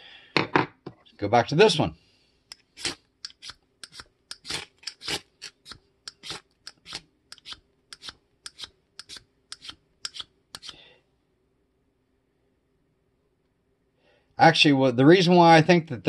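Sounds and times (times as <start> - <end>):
striker scraping ferro rod: 2.5 - 10.8.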